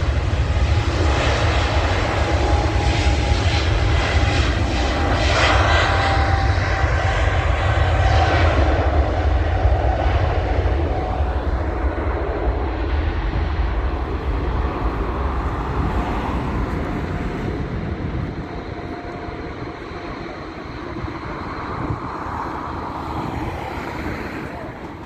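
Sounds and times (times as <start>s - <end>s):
jet engines rumbling: 0.0s - 25.0s.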